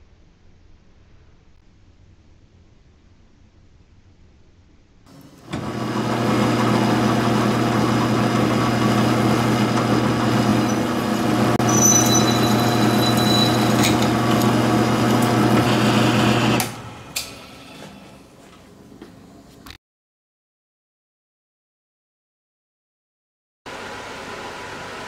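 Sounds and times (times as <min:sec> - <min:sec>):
milling machine motor hum: 0:05.1 - 0:18.0
drill boring metal: 0:05.4 - 0:16.8
high cutting whine: 0:07.8 - 0:16.7.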